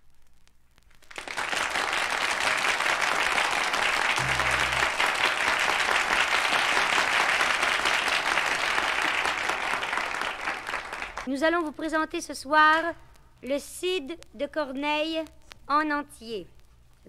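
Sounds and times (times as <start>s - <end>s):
audience applause: 1.1s - 11.3s.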